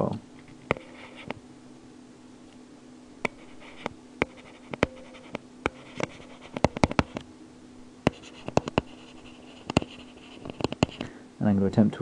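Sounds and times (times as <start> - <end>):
faint steady hum: 0.0 - 12.0
stylus tapping on a tablet: 3.2 - 7.2, 8.1 - 9.0, 9.6 - 11.0.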